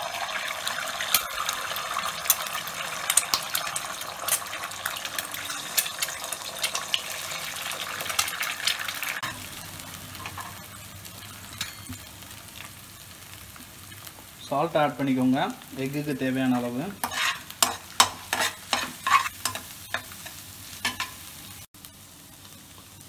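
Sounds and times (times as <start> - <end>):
oil crackling and popping: 0.0 - 14.5
eggs sizzling in hot oil: 0.0 - 23.0.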